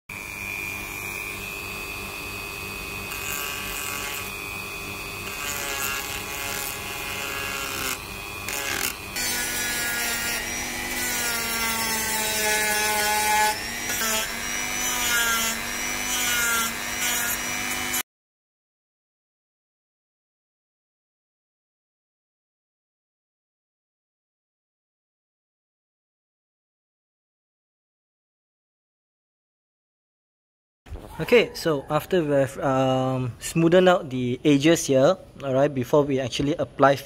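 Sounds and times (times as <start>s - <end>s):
rotary tool sanding metal: 0.1s - 18.0s.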